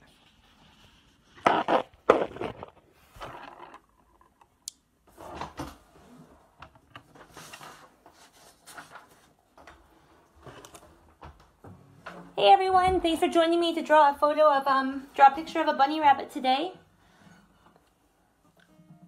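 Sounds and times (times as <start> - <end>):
rustling: 7.0 - 9.7.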